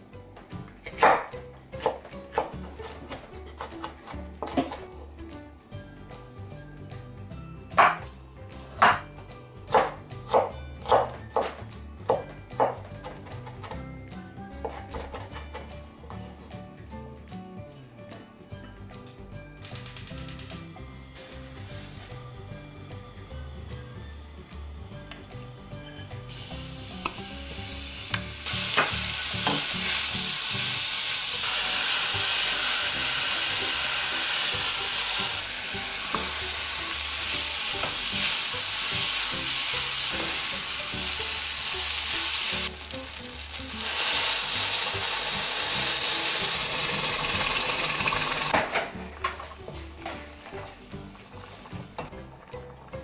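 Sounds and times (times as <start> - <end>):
vegetables sizzling in oil: 21.2 - 48.5.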